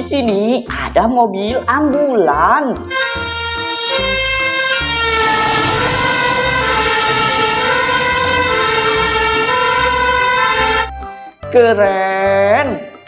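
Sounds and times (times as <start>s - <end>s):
two-tone emergency siren: 2.9s - 11.0s.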